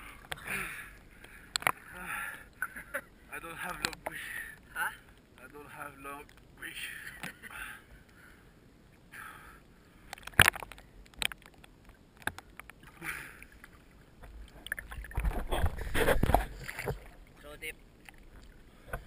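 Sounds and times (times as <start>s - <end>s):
seawater sloshing and splashing: 10.1s - 19.0s.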